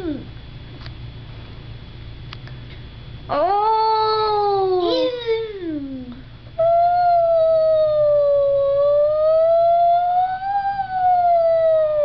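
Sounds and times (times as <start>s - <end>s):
toddler imitating a siren: 3.9s - 6.0s.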